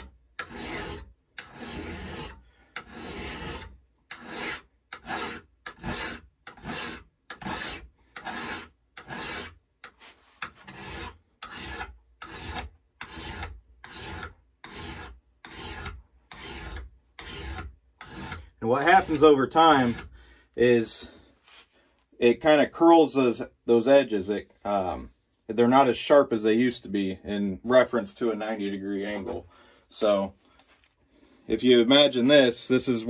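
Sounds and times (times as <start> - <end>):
blade sharpening rasp: 0.0 - 9.6, 10.4 - 20.1.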